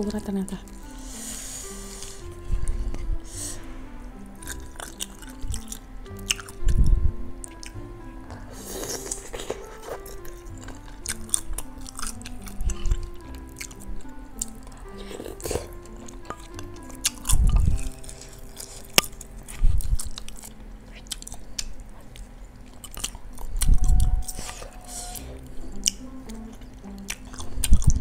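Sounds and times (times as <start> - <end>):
soft background music: 0.0 - 28.0
dull low swells: 0.8 - 8.5
person chewing with wet clicks: 4.4 - 28.0.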